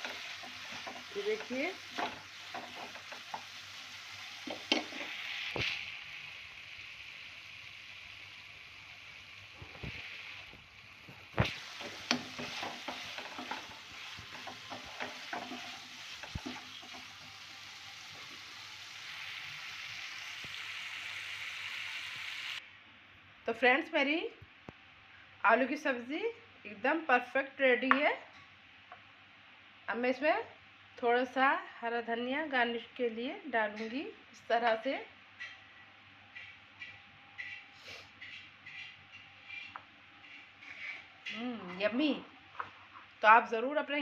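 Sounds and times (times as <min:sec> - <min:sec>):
potatoes sizzling in oil: 0:00.0 - 0:22.6
wooden spatula knocking pan: 0:11.4 - 0:17.0.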